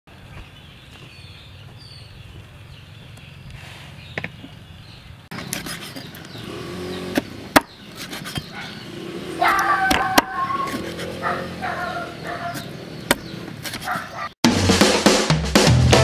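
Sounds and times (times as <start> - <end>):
cleaver chopping on wooden board: 7.1 - 8.6.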